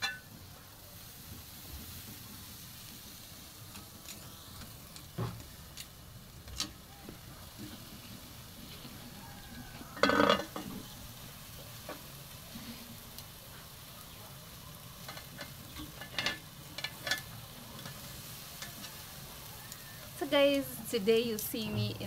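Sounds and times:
metal clank on grill grate: 0.0s - 0.4s, 5.2s - 6.8s, 9.7s - 10.9s, 15.0s - 19.0s
beef sizzling on a grill: 0.0s - 22.0s.

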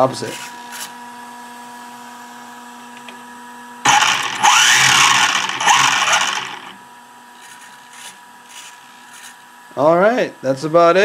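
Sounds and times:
model car motor and gears whirring: 3.9s - 6.8s.

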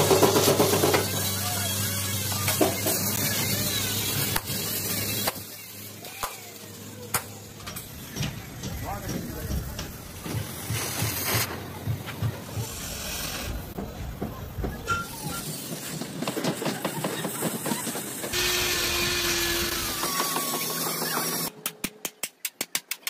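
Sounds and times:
cutting torch hissing: 1.0s - 11.5s, 12.4s - 13.8s, 15.1s - 21.5s.

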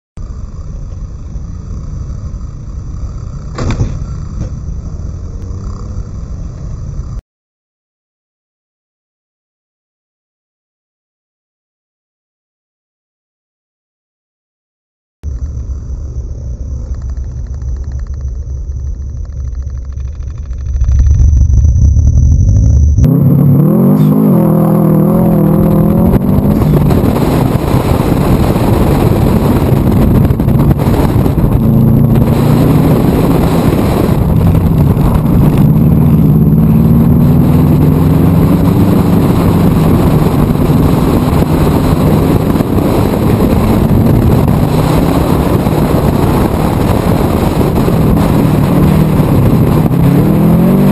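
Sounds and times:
car engine revving: 0.2s - 7.2s, 15.3s - 50.9s
gravel under tyres: 0.2s - 7.2s, 15.2s - 50.9s
wind rushing: 17.0s - 50.9s.

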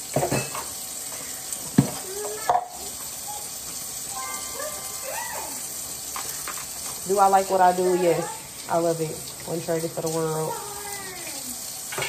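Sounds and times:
faucet running into sink: 0.0s - 12.0s
plastic dishes knocking and clattering: 1.6s - 2.7s.

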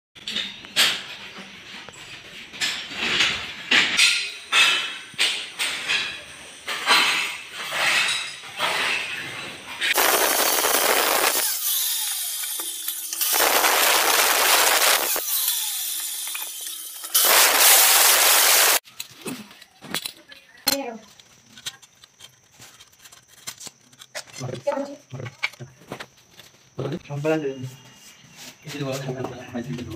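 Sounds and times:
cutter motor running free: 9.9s - 18.8s
power cutter cutting tile: 9.9s - 18.8s.

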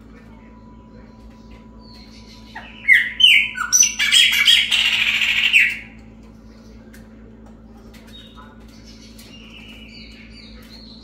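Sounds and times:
blackbird singing: 0.8s - 6.0s, 8.1s - 11.0s.

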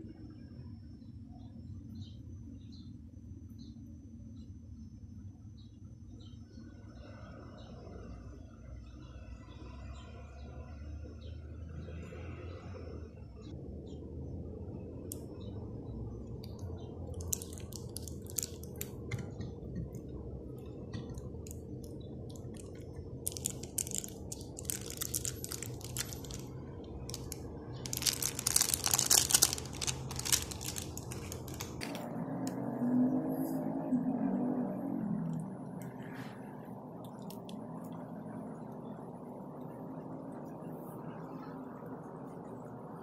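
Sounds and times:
steady low hum: 0.0s - 43.0s
pastry crinkling under hands: 16.5s - 19.3s, 20.9s - 32.0s.

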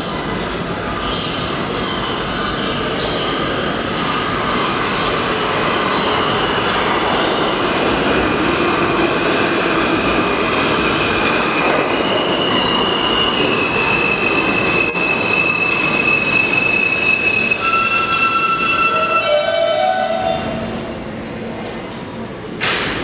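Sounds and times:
subway train wheels rumbling: 0.0s - 23.0s
high brake squeal: 12.0s - 20.7s.

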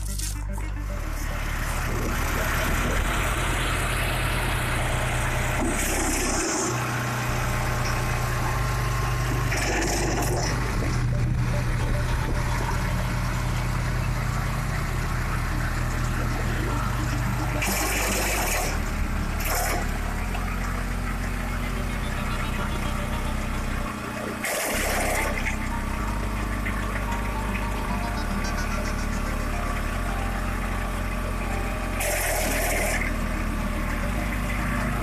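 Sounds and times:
wood crunching in chipper: 0.0s - 6.8s, 14.2s - 21.8s, 23.9s - 27.9s, 28.6s - 35.0s
wood chipper engine running: 0.0s - 35.0s.

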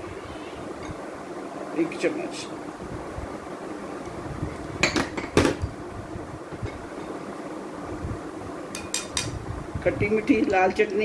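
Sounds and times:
low background hum: 0.0s - 11.0s
steel spoon clinking on dishes: 8.8s - 9.3s.

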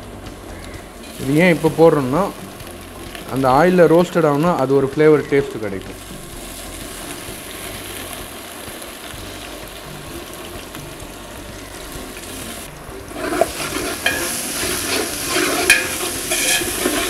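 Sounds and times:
lentils sizzling in hot oil: 0.0s - 17.0s
ladle stirring and scraping pot: 13.0s - 17.0s.

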